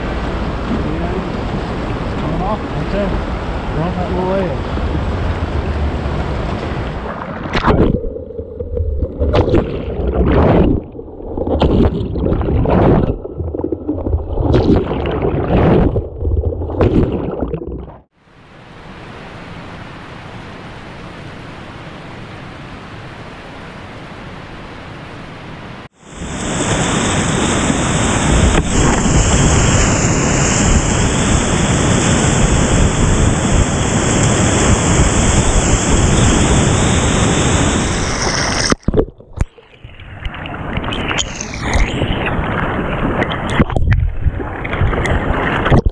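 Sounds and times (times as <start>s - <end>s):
water splashing and sloshing: 4.6s - 18.2s, 25.8s - 45.9s
water hiss: 26.0s - 38.8s.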